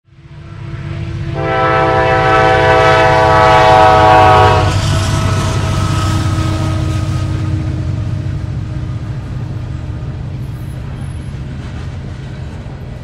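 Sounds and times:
train engine rumble: 0.1s - 13.0s
locomotive air horn blast: 0.4s - 8.4s.

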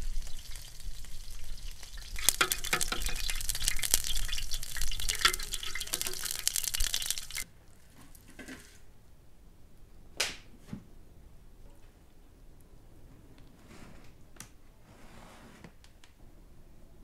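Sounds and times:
vegetables sizzling in hot oil: 0.0s - 7.5s.

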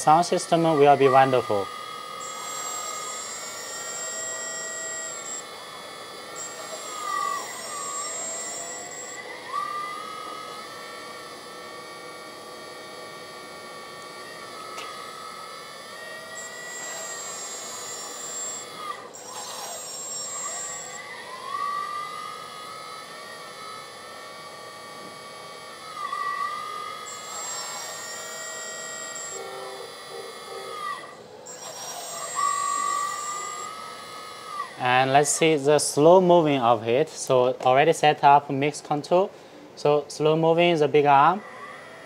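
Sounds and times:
thin high whine: 0.0s - 10.8s, 26.1s - 33.8s
electric hydraulic pump whining: 0.0s - 36.2s, 41.0s - 42.0s.

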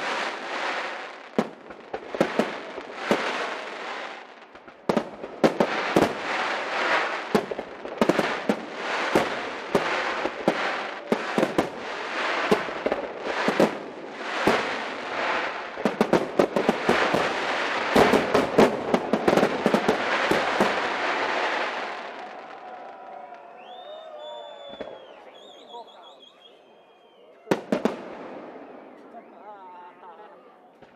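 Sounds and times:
firework crackle: 0.0s - 25.7s
sharp firework bangs: 4.9s - 21.8s.

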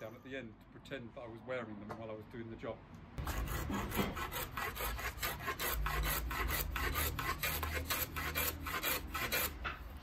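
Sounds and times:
block plane shaving wood: 3.2s - 9.9s.

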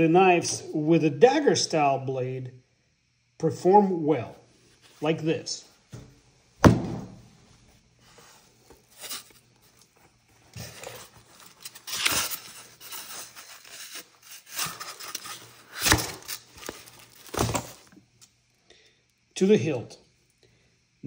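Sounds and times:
thump: 5.9s - 7.2s.

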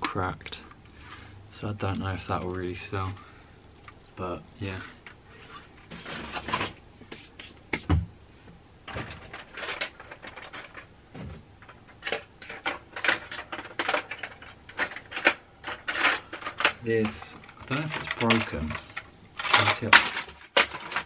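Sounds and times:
toy cars clattering: 8.9s - 10.9s, 11.6s - 21.0s.

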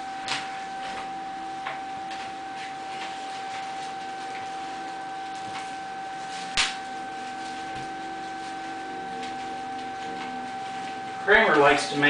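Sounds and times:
steady high whine: 0.0s - 12.0s
bubble wrap popping: 2.0s - 11.0s.

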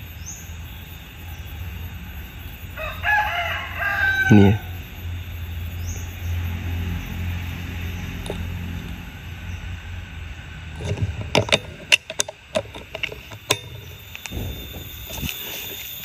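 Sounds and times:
sharp clicks and knocks: 8.2s - 9.0s, 10.8s - 15.9s.

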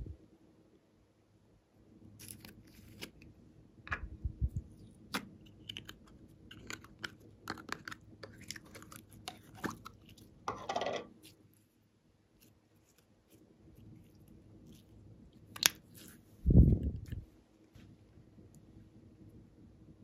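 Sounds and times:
plastic clicks and crackles: 5.1s - 9.9s
sticky slime crackling: 12.3s - 16.3s.

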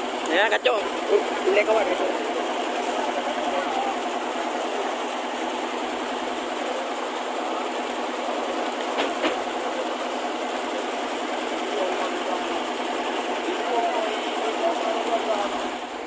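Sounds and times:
boat engine running: 0.0s - 16.0s
deck machinery running: 0.0s - 16.0s
sharp knocks: 8.9s - 9.5s.

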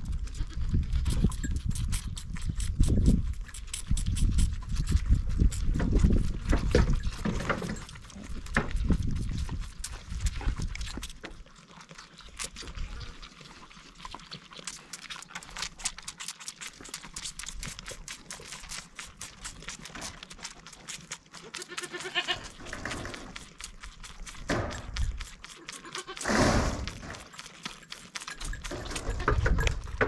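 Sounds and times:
goat kid bleating: 0.0s - 1.0s, 21.4s - 22.6s, 25.5s - 26.3s, 28.8s - 29.7s
goat kids sucking on teats: 0.0s - 30.0s.

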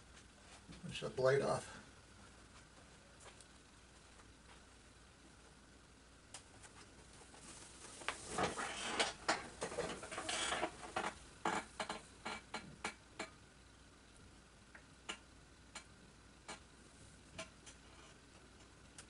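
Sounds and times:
rustling: 6.6s - 11.6s.

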